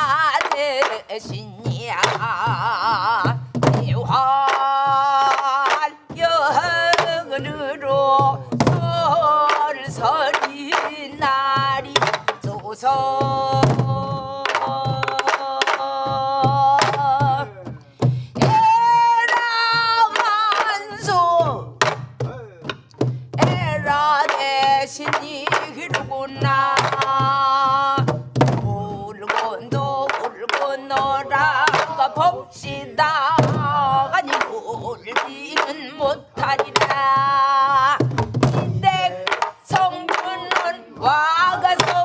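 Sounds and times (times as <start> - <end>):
woman singing long held notes: 0.0 - 17.8, 18.4 - 21.7, 23.4 - 38.0, 38.6 - 42.0
barrel drum thuds: 1.2 - 4.2, 20.9 - 30.3, 31.0 - 42.0.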